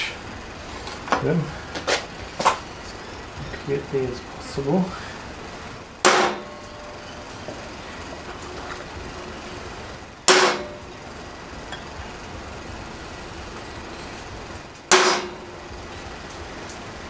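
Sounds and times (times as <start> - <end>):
hammer striking centre punch: 6.0 - 6.8, 10.3 - 10.9, 14.9 - 15.5.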